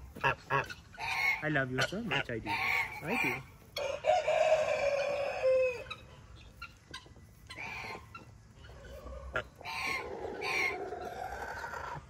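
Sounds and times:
rooster crowing: 0:03.8 - 0:06.0.

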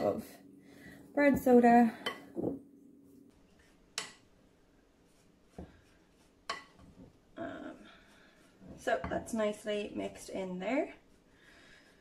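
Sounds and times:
spoon scraping dry mix: 0:04.9 - 0:11.3.

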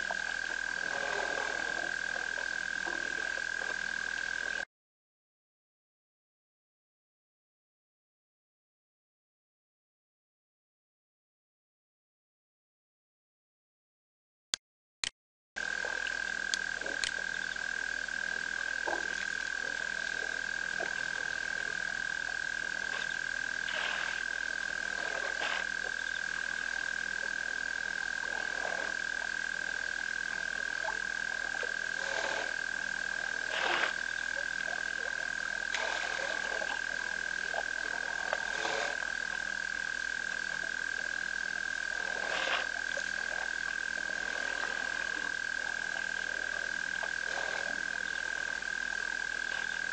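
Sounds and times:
frog croaks: 0:00.0 - 0:04.6, 0:15.6 - 0:49.9
frog chorus drone: 0:00.0 - 0:04.7, 0:15.6 - 0:49.9.

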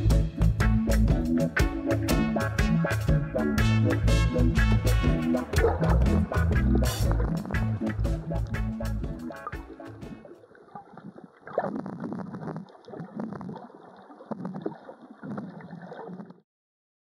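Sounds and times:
water splashing and gurgling: 0:05.1 - 0:16.4.

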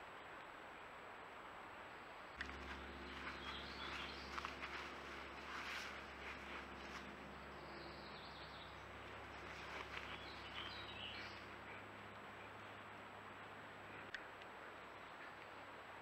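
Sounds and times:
soft rustles: 0:02.4 - 0:07.3, 0:08.9 - 0:11.6
soft bird chirps: 0:02.4 - 0:12.8
low hum: 0:02.4 - 0:16.0.

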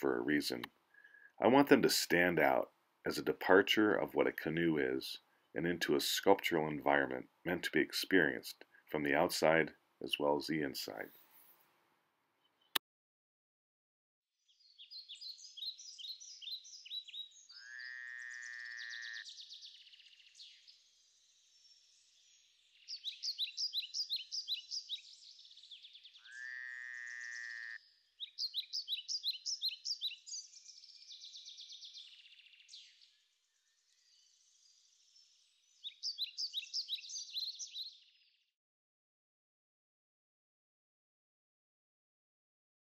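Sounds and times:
longer lower animal call: 0:17.5 - 0:19.3, 0:26.2 - 0:27.8.

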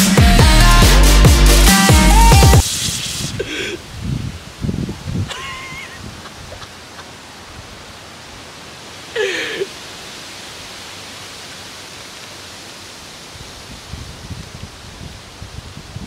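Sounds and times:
soda fizzing hiss: 0:02.6 - 0:04.1.

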